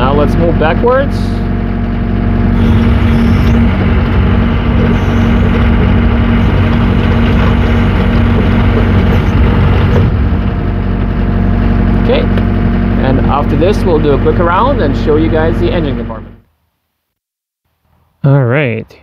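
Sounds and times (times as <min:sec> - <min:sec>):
diesel engine running under load: 0:00.0 - 0:16.5
crawler tracks over gravel: 0:02.6 - 0:11.4.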